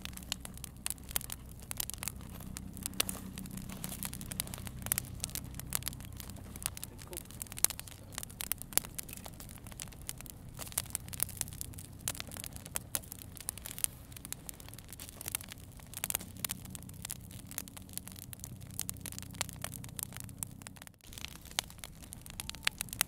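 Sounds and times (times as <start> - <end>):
campfire crackling and popping: 0.0 - 23.0
low steady hum: 0.0 - 23.0.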